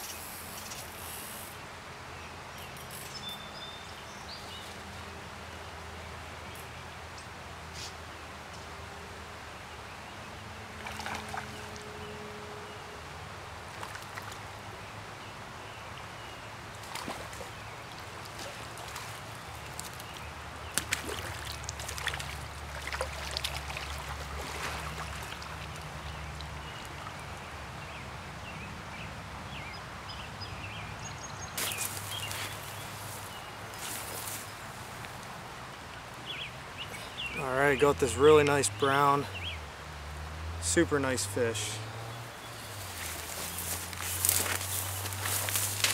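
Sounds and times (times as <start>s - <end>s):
stream flowing: 0.0s - 45.9s
fish splashing: 20.7s - 27.2s.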